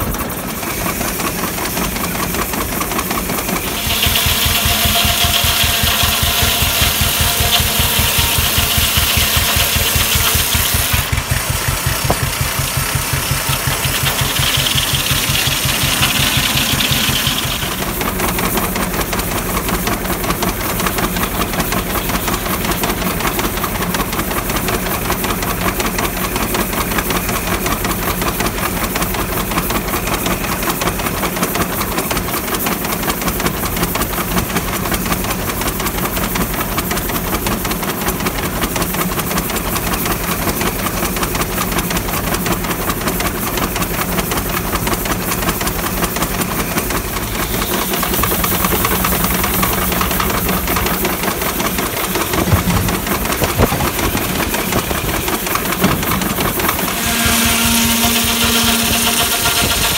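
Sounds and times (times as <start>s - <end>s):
steam hiss: 0.0s - 24.2s, 44.7s - 59.9s
steam engine exhaust knocks: 3.9s - 18.4s, 47.6s - 58.9s.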